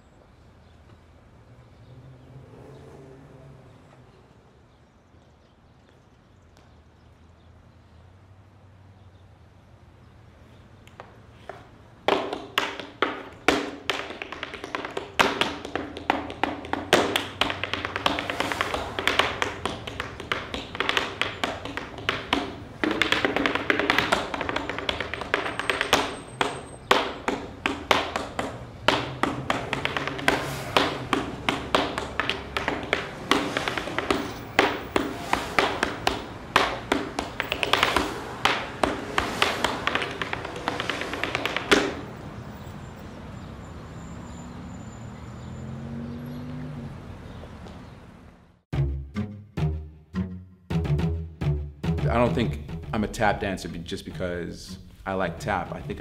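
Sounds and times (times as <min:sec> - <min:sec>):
tap shoes on wooden board: 0:10.9 - 0:42.2.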